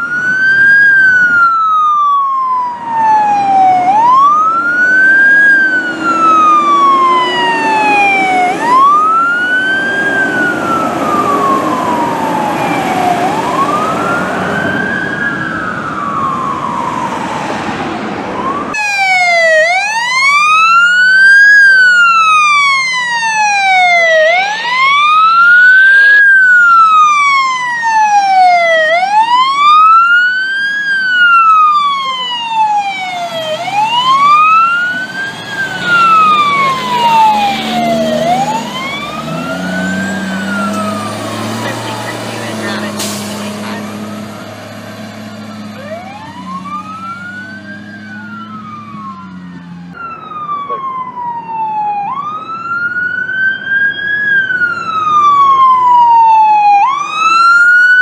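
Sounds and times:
fire truck siren wailing: 0.0s - 58.0s
traffic and engine rumble: 0.0s - 58.0s.

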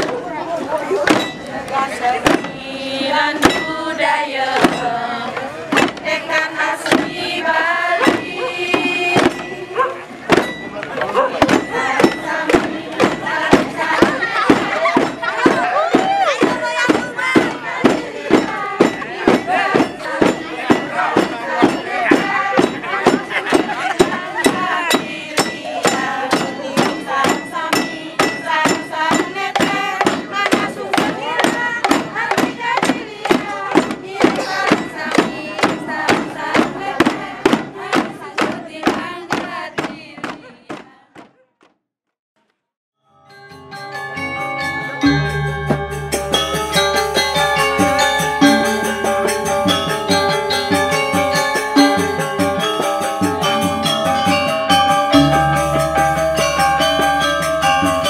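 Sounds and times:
group of voices chanting: 0.0s - 10.2s, 11.0s - 41.3s
hand drums: 3.3s - 3.9s, 4.5s - 40.4s, 43.8s - 58.0s.

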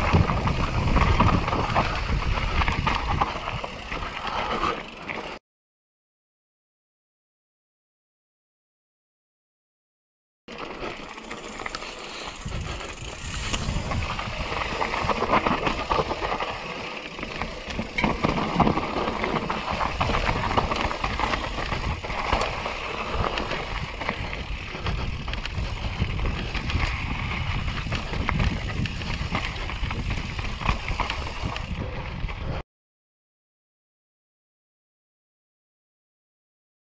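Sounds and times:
wind on microphone: 0.0s - 3.7s, 12.4s - 16.6s, 18.6s - 32.6s
bike rattling over bumps: 0.0s - 5.4s, 10.5s - 32.6s
tyres crunching over stones: 13.1s - 31.5s.

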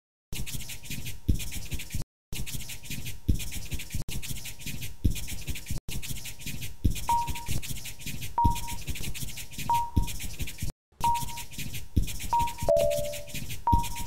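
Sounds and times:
marker scribbling on paper: 0.3s - 14.0s
short high ding: 12.7s - 13.3s.

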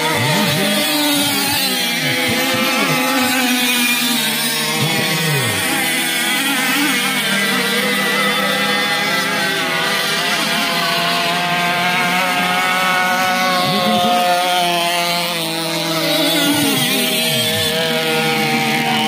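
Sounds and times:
rc boat engines buzzing: 0.0s - 19.0s.

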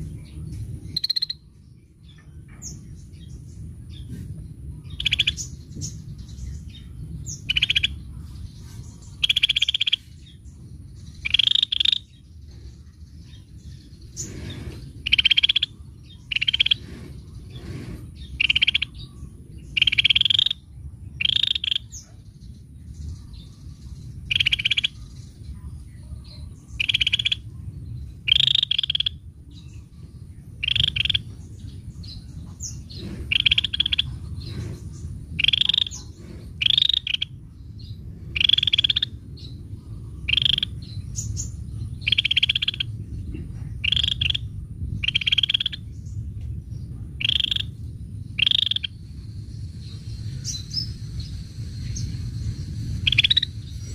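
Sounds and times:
low background rumble: 0.0s - 53.9s
bird calling: 7.3s - 8.1s, 9.0s - 10.1s, 11.2s - 12.1s, 13.9s - 20.6s, 24.3s - 25.1s, 26.7s - 27.5s, 28.3s - 29.2s, 30.6s - 31.4s, 32.4s - 39.2s, 40.2s - 41.4s, 42.0s - 45.8s, 47.2s - 47.8s, 48.4s - 49.0s, 53.0s - 53.9s.

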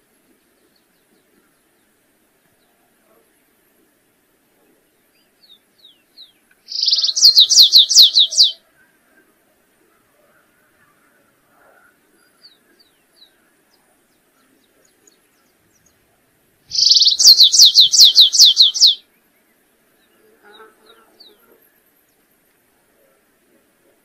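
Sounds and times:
finch song: 4.8s - 8.8s, 12.1s - 22.3s.

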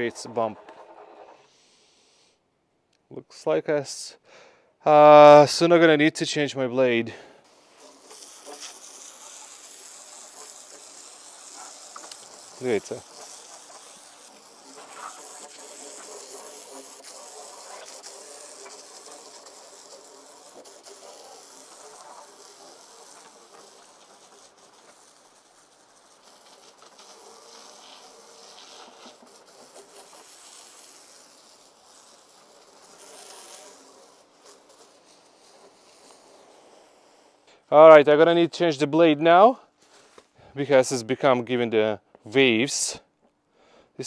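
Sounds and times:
pressure washer spraying water: 7.4s - 37.3s.

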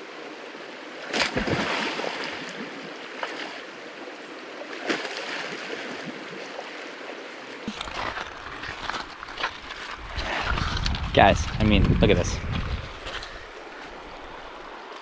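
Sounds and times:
people splashing in water: 1.1s - 2.6s, 4.7s - 6.2s
river water rushing: 13.3s - 15.0s.

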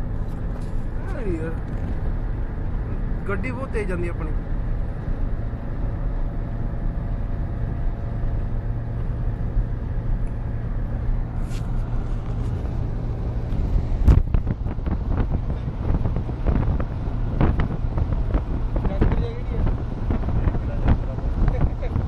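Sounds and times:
vehicle engine running: 0.0s - 22.0s
wind on microphone: 11.4s - 22.0s
sharp thump: 14.0s - 14.6s.

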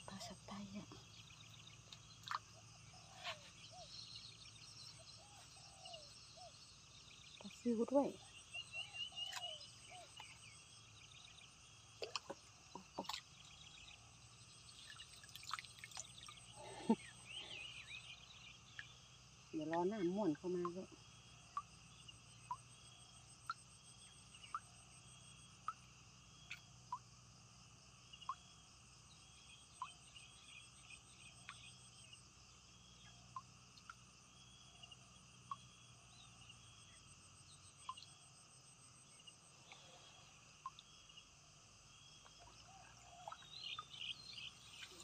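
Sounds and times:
crickets chirping: 0.0s - 45.0s
small ticks: 31.4s - 31.8s, 33.3s - 34.1s, 40.6s - 40.9s.

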